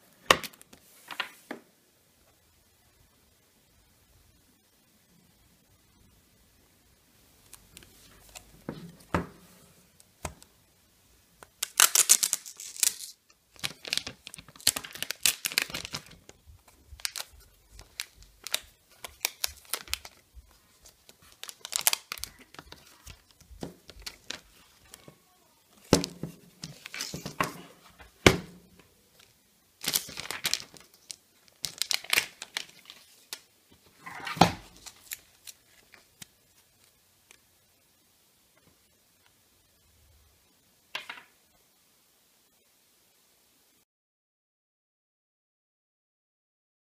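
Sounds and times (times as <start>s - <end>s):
plastic packaging crinkling: 11.5s - 25.1s, 25.8s - 28.2s, 29.1s - 37.4s.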